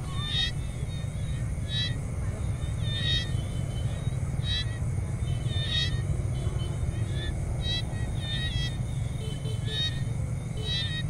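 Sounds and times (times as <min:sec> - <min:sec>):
chirping animal calls: 0:00.0 - 0:11.0.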